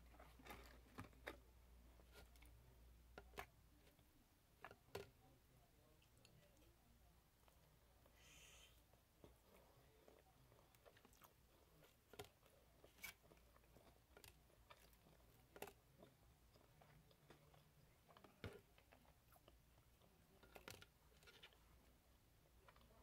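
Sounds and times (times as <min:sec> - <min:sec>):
chewing fried chicken: 0:09.2 - 0:21.6.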